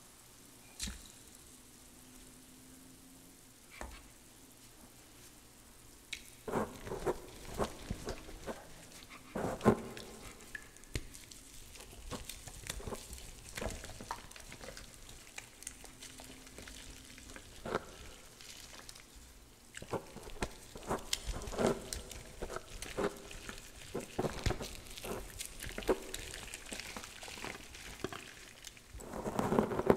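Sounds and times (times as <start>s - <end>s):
wet chalk crumbling and crackling: 6.1s - 29.9s.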